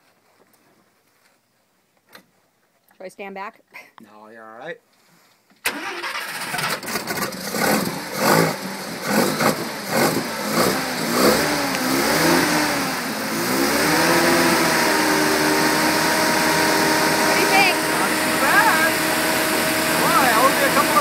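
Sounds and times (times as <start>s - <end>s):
rotary engine revving unevenly: 6.2s - 21.0s.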